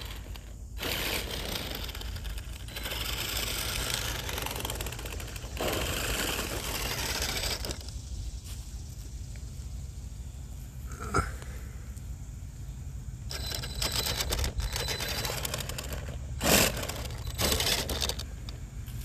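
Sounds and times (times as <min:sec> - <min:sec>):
toy truck motor whirring: 0:00.0 - 0:08.1, 0:13.3 - 0:19.0
tyres crunching over gravel: 0:00.0 - 0:09.2, 0:13.3 - 0:19.0.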